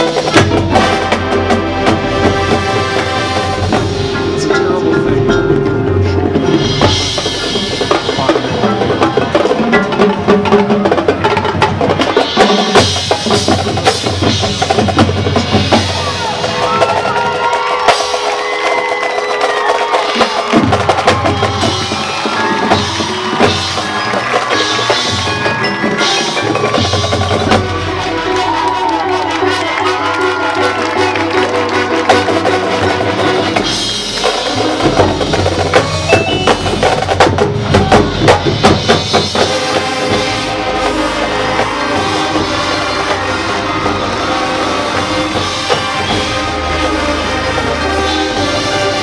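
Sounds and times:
marching band drums: 0.0s - 49.0s
mallet percussion ringing: 3.9s - 10.6s, 21.5s - 28.0s, 33.6s - 38.6s.

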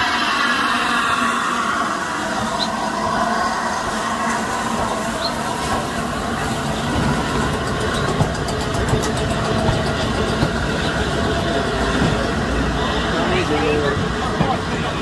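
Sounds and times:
train wheels rumbling on track: 0.0s - 15.0s
wheel clacks on track: 6.8s - 11.0s.

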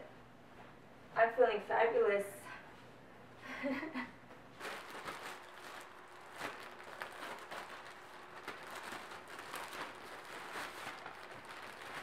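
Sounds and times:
clothing packaging rustling: 4.5s - 12.0s.

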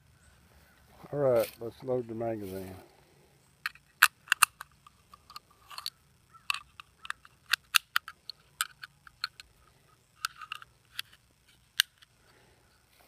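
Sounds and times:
cartridges clicking into magazine: 3.7s - 9.5s, 11.7s - 12.1s.

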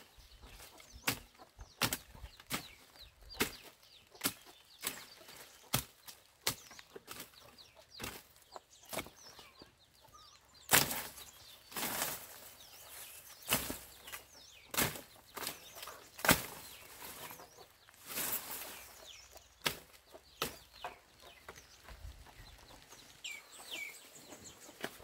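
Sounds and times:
leaves rustling: 0.0s - 9.4s, 10.6s - 25.0s
hand tool chopping grass: 0.8s - 7.4s, 8.0s - 9.2s, 10.7s - 17.4s, 18.0s - 20.8s.

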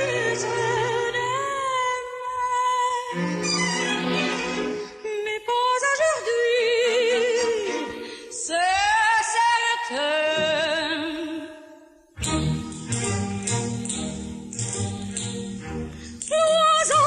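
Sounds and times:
woman singing with vibrato: 0.0s - 3.6s, 5.0s - 12.1s, 16.2s - 17.0s.

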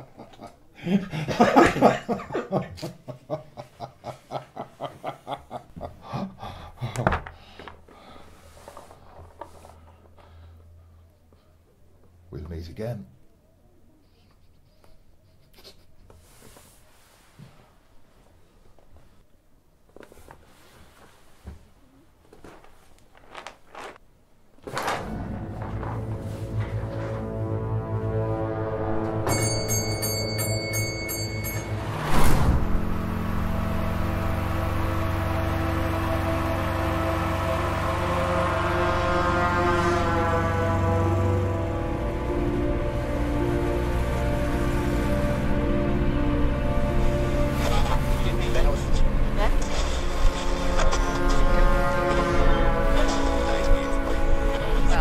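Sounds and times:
man chuckling: 0.0s - 7.3s, 14.4s - 16.2s
horror film score drone: 25.0s - 55.0s.

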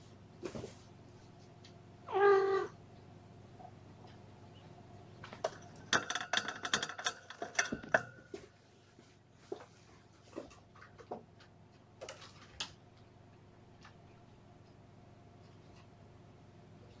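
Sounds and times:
kitten meowing: 2.1s - 2.8s.

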